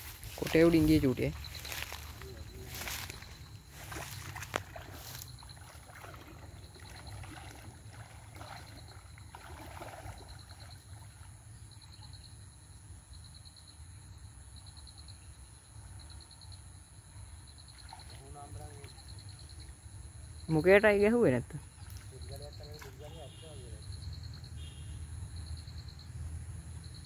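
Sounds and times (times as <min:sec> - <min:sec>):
river water sloshing around legs: 0:00.0 - 0:12.1, 0:17.2 - 0:19.9, 0:21.5 - 0:23.4.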